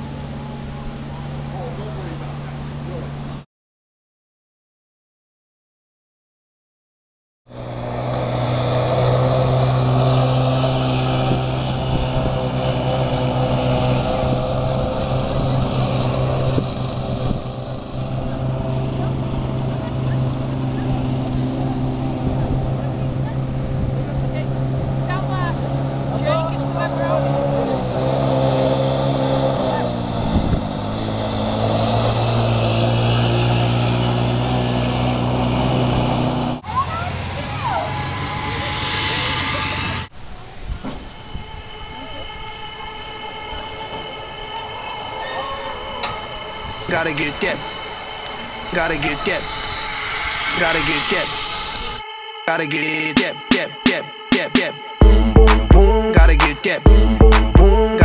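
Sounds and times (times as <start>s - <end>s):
atv engine running: 0.0s - 3.4s, 7.5s - 40.1s
hiss: 47.6s - 52.0s.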